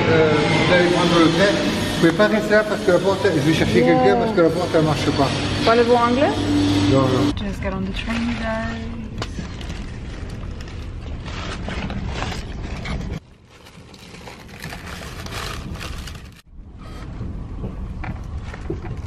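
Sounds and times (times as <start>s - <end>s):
train carriage rumbling: 14.9s - 19.0s.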